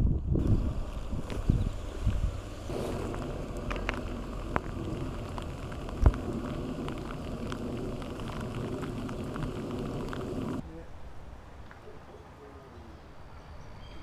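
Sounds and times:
rain falling on water: 0:00.4 - 0:10.6.

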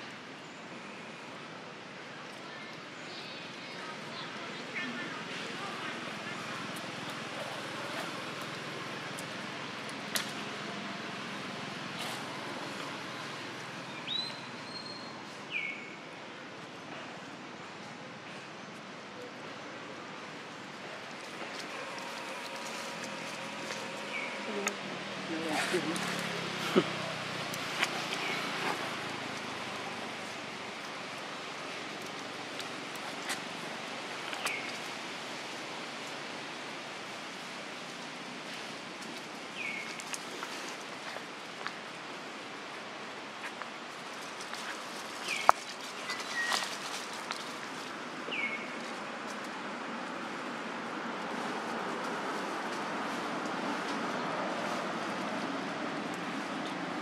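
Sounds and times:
outdoor background hiss: 0:00.0 - 0:57.0.

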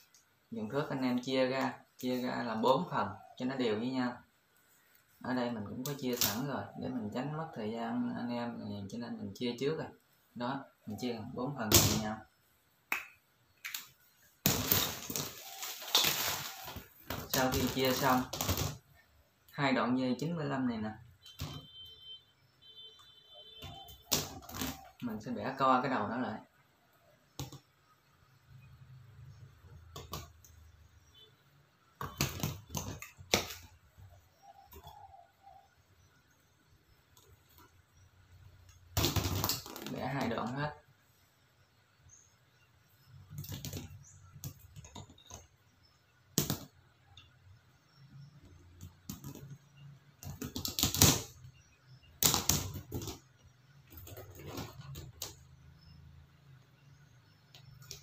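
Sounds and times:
sharp clicks and snaps: 0:12.9 - 0:14.0
wire rod scraping and rattling: 0:14.5 - 0:18.8.

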